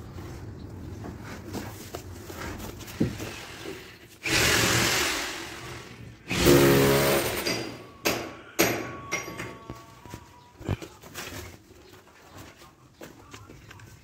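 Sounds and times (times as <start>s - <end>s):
power tool running: 3.6s - 7.8s.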